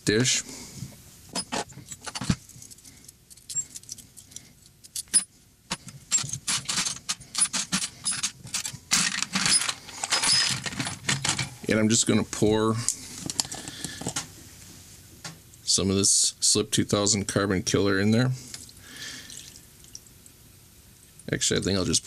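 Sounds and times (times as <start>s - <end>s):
pistol parts clattering in plastic dish: 4.9s - 11.6s.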